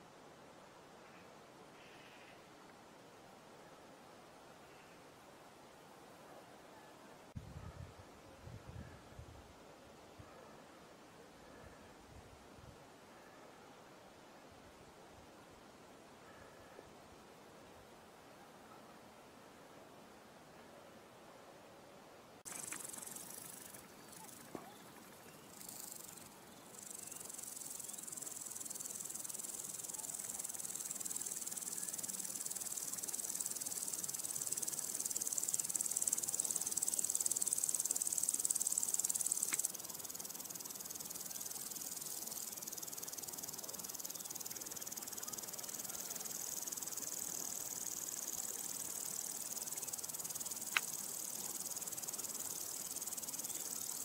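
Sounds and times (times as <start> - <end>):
insects chirring in grass: 22.5 - 54.0
sharp click: 39.4 - 39.7, 50.7 - 50.9.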